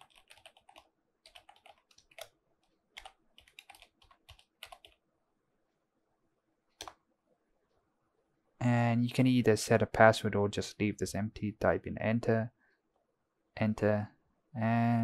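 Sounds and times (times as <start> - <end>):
keyboard typing: 0.0 - 5.0.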